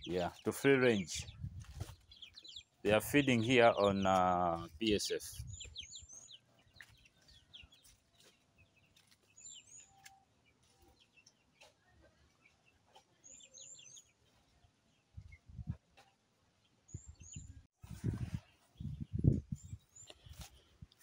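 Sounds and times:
faint bird chirps: 0.0s - 15.6s.

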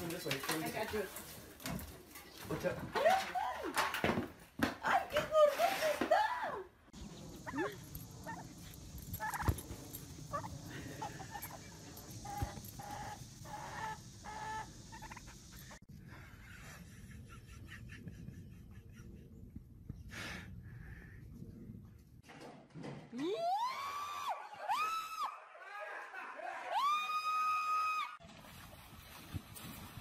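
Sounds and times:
turkey gobbling: 7.1s - 15.8s.

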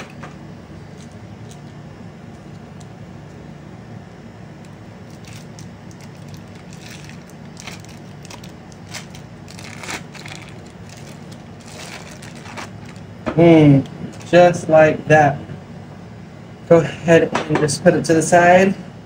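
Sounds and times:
low background hum: 0.0s - 19.0s
foil wrapper crackling: 5.0s - 13.0s.

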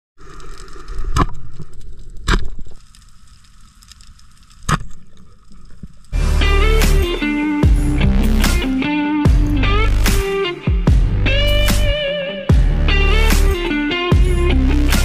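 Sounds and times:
guitar music: 6.2s - 15.0s.

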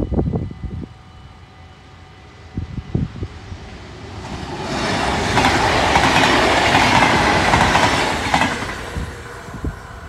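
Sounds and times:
electric train passing: 0.0s - 10.0s
train wheels on rails: 2.1s - 10.0s.

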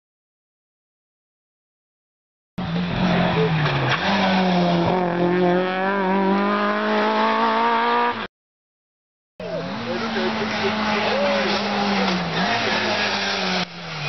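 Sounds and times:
car engine revving hard: 2.6s - 8.3s, 9.4s - 14.0s.

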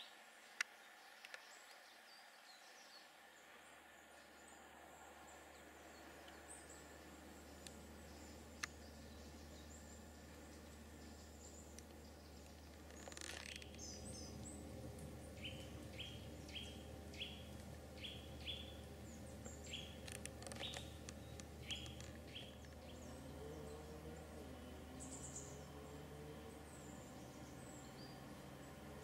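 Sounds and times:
birds chirping faintly: 0.0s - 29.0s
high bird twittering: 15.3s - 23.2s.

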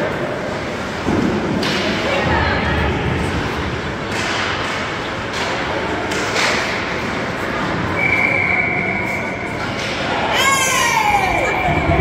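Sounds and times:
arena noise: 0.0s - 12.0s
hockey sticks and puck knocks: 1.0s - 2.4s, 3.1s - 7.5s, 9.7s - 10.1s
referee's whistle: 8.0s - 9.3s.

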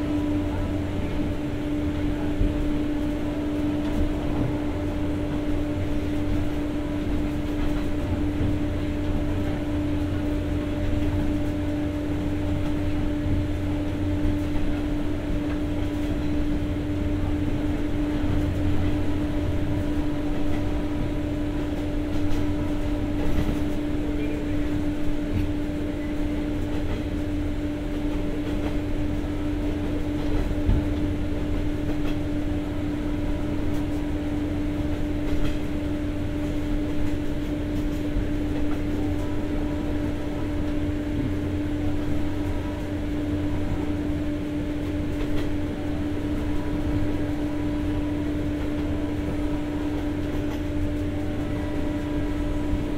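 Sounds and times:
train rumbling: 0.0s - 52.9s.

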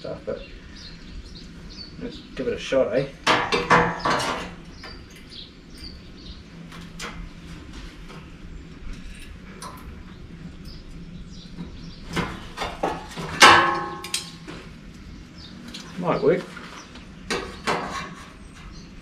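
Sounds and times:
steady low hum: 0.0s - 19.0s
sharp metal knocks: 3.2s - 5.0s, 12.1s - 14.6s.

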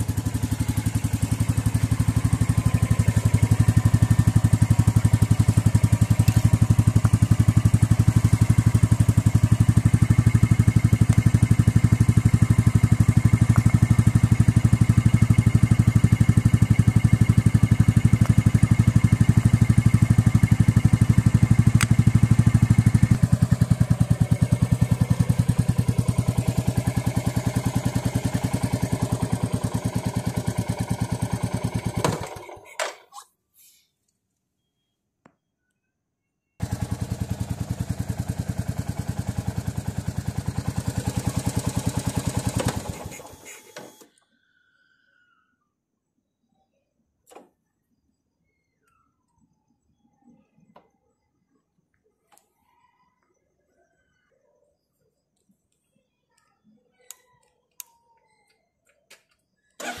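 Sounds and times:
motorcycle engine idling: 0.0s - 32.8s, 36.6s - 43.7s, 59.8s - 60.0s.

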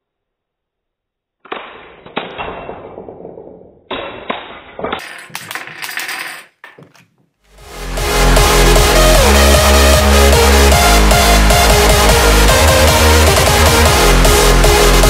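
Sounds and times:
plastic bricks clattering over: 4.8s - 7.2s.

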